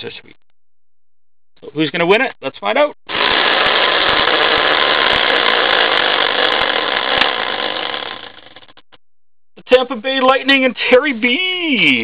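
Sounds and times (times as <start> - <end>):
prize wheel whirring and clattering: 3.1 - 8.9.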